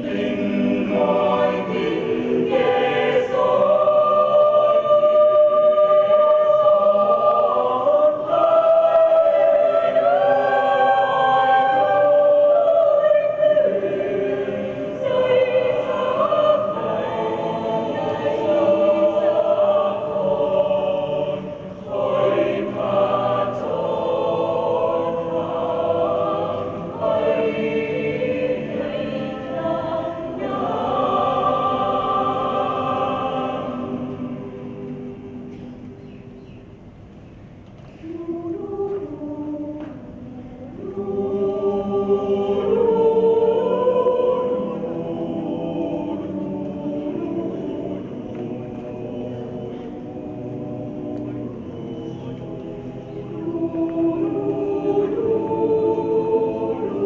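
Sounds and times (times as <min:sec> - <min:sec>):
mixed choir singing held notes: 0:00.0 - 0:57.0.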